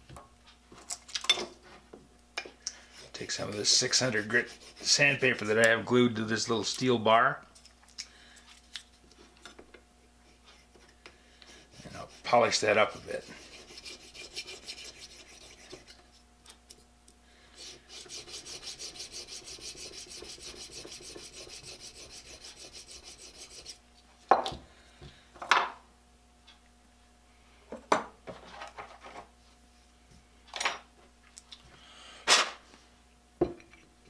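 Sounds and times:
sandpaper stroking on steel: 2.9s - 5.5s, 11.5s - 15.9s, 17.6s - 23.8s.

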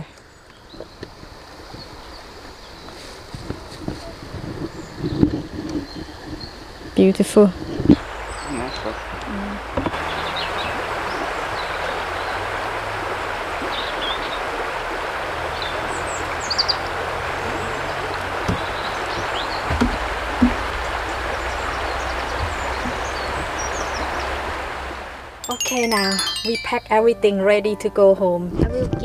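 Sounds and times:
river flowing: 0.0s - 5.0s, 5.8s - 27.1s
short high chirps: 25.4s - 27.0s.

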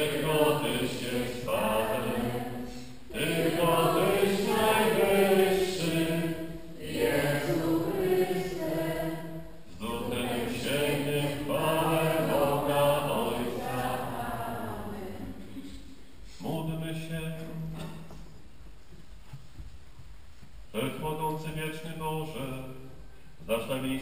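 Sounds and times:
congregation singing a chant: 0.0s - 15.6s.

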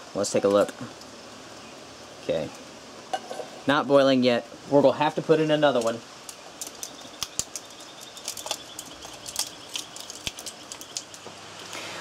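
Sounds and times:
foil wrapper crinkling and tearing: 5.8s - 11.8s.

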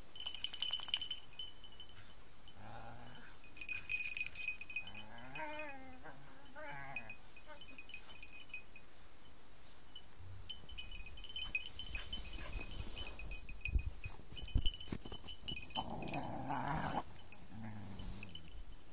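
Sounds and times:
small bells tinkling: 0.0s - 18.9s
rustling: 6.8s - 18.9s.

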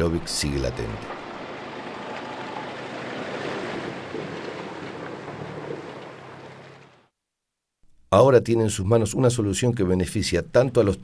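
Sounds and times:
water rushing and splashing: 0.0s - 7.1s
truck engine humming: 0.2s - 7.1s.

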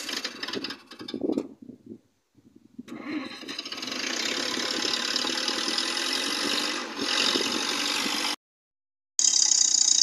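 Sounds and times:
forklift engine running: 3.0s - 8.4s.

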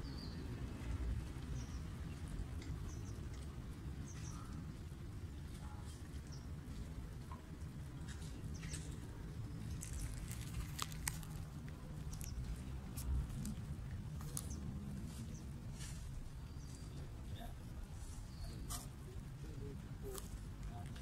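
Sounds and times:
low steady rumble: 0.0s - 21.0s
cats crunching dry kibble: 8.7s - 15.1s.

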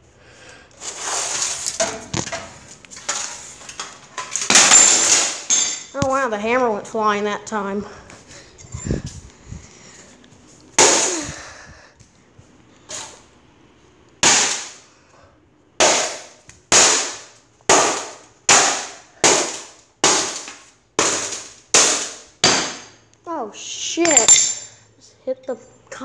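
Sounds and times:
hammer smashing plastic fan: 1.4s - 5.8s, 10.8s - 11.3s, 14.2s - 14.8s, 15.8s - 23.0s.

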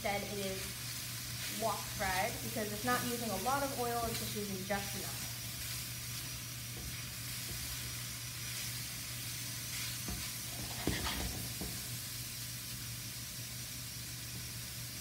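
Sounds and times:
chicken sizzling in a skillet: 0.0s - 15.0s
spatula scraping and tapping pan: 5.6s - 8.8s, 9.6s - 11.9s.

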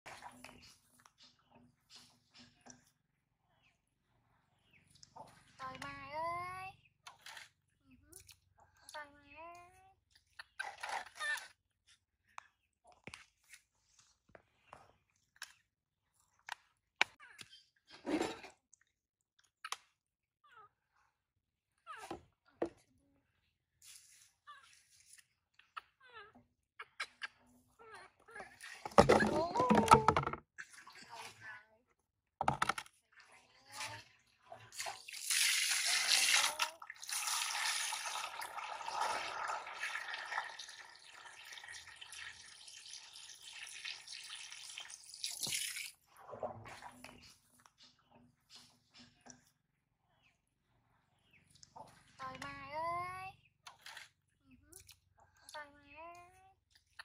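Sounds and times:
water splashing into plastic basin: 28.6s - 31.4s, 34.7s - 47.2s.

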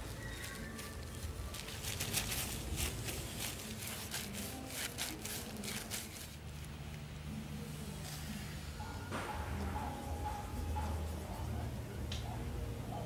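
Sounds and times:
plastic gloves crinkling: 0.0s - 7.2s
steady low hum: 0.9s - 13.0s.

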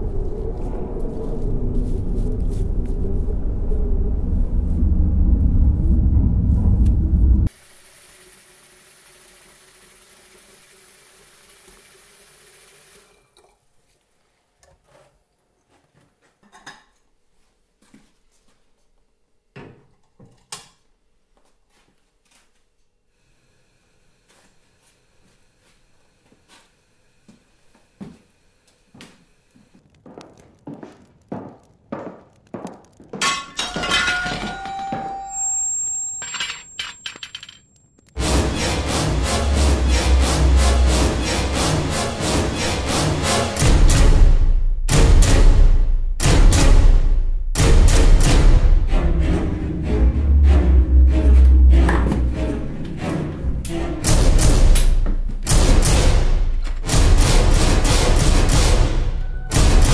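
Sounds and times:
tap water running into kettle: 7.6s - 13.5s
footsteps on a hard floor: 17.4s - 18.9s, 27.3s - 33.3s
kitchenware clinking and knocking: 33.1s - 35.4s
broken pieces clinking and rattling: 33.1s - 38.1s
loud music: 38.2s - 54.8s.

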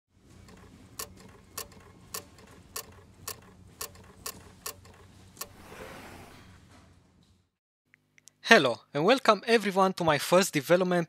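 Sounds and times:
sharp mechanical clicks: 0.4s - 5.6s
whoosh: 5.5s - 6.6s.

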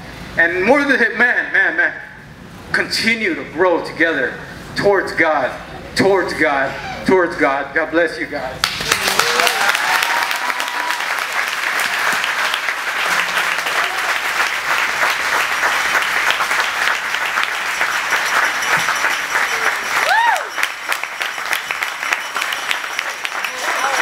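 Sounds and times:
audience applauding: 8.6s - 24.0s.

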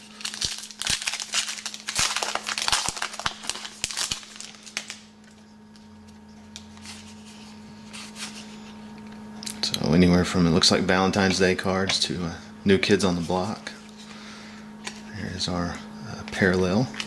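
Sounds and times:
wrapper crinkling and tearing: 0.0s - 5.4s.

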